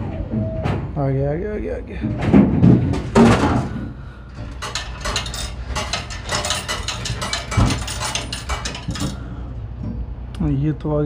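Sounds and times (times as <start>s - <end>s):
coins clinking into metal cup: 4.6s - 9.2s.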